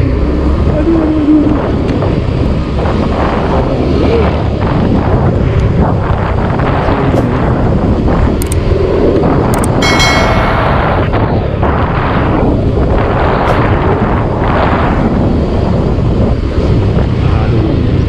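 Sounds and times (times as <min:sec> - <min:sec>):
scooter engine and road noise: 0:00.0 - 0:18.0
wind rushing over microphone: 0:00.0 - 0:18.0
sharp clicks: 0:08.4 - 0:08.6.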